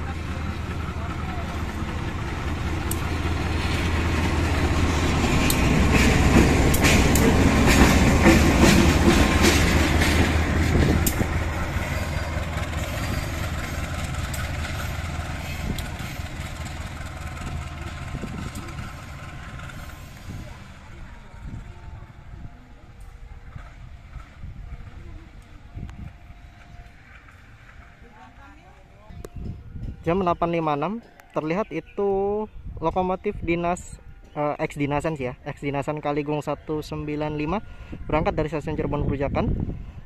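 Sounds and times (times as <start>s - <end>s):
wheels clicking over rail joints: 0.0s - 20.9s
locomotive engine humming: 0.0s - 40.0s.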